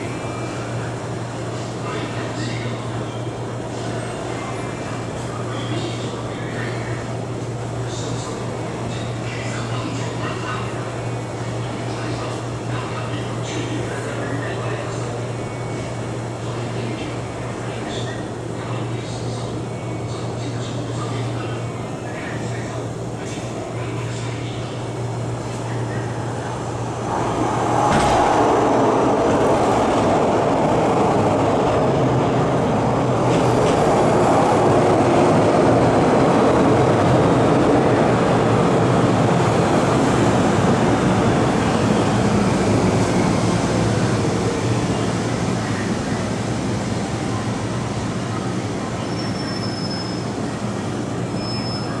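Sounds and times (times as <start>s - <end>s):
train brake squeals: 49.0s - 50.4s, 51.3s - 52.0s.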